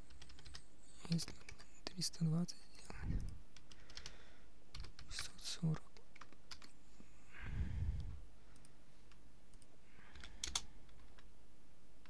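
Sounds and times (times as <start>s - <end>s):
computer keys clicking: 0.0s - 2.0s, 2.8s - 6.8s, 8.5s - 11.3s.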